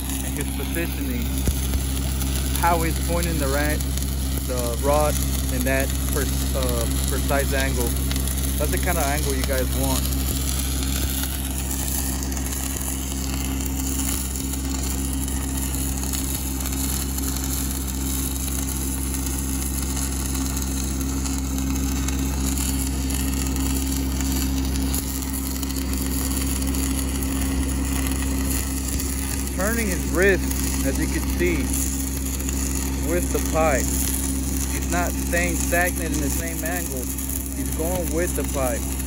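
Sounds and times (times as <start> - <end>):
steady low hum: 0.0 - 39.0
welding arc crackling: 0.0 - 39.0.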